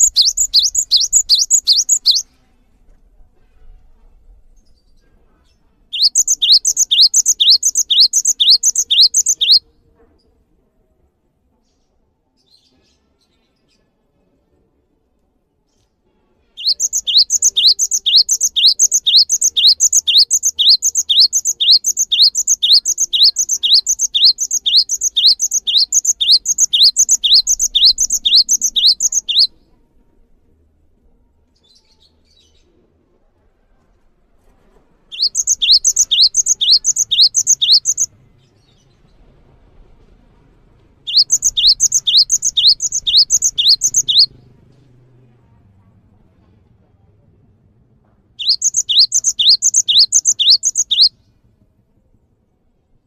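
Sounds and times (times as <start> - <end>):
tit singing whistled notes: 0.0 - 2.2, 6.0 - 9.6, 16.6 - 29.5, 35.1 - 38.1, 41.1 - 44.3, 48.4 - 51.1.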